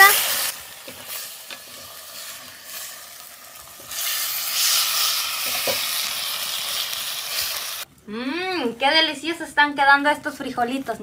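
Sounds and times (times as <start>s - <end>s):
food sizzling in hot oil: 0.0s - 7.9s.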